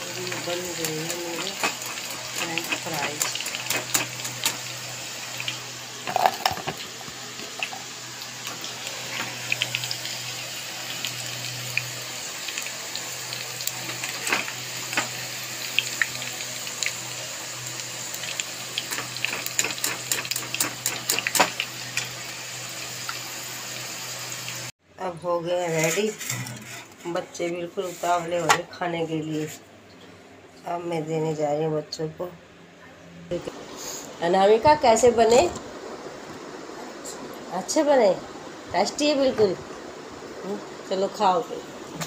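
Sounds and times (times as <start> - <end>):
fries sizzling in hot oil: 0.0 - 24.7, 33.4 - 42.0.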